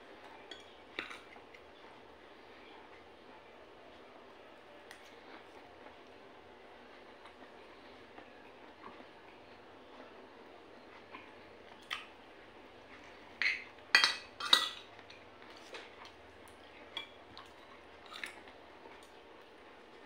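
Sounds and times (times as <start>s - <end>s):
cutlery clinking on plate: 13.4s - 15.8s.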